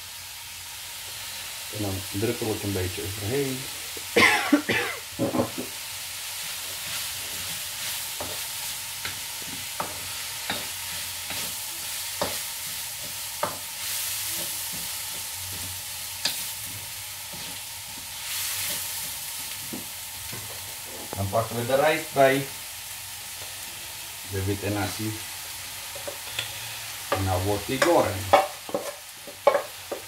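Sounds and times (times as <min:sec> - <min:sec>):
food sizzling in a wok: 0:00.0 - 0:30.0
spatula scraping a pan: 0:06.4 - 0:19.8
spatula tapping a pan: 0:09.0 - 0:11.5, 0:13.0 - 0:13.7, 0:27.1 - 0:30.0.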